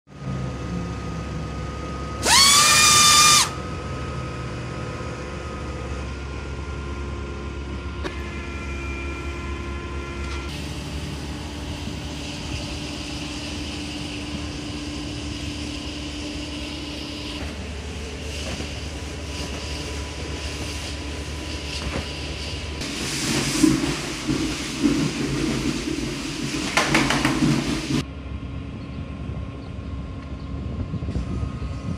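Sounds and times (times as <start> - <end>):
loud whistling tone: 2.2 - 3.6
pneumatic pump running: 2.2 - 3.6.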